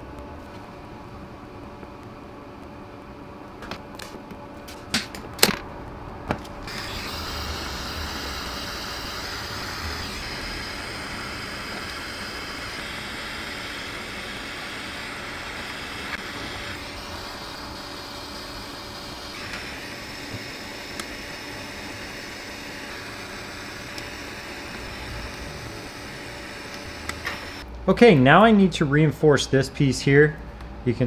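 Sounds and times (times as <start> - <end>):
steady blowing hiss: 6.9 - 27.6.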